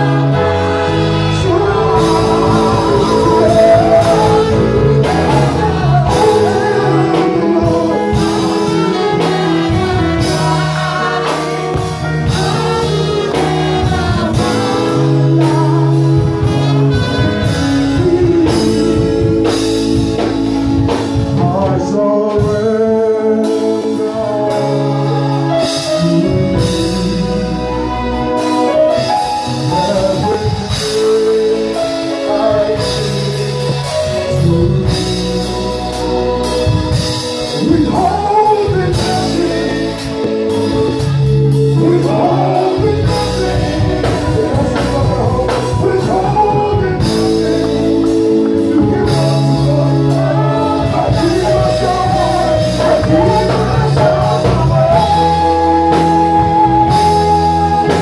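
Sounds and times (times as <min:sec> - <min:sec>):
band with bass and drums: 0:00.0 - 0:58.0
man singing into microphone: 0:00.0 - 0:58.0.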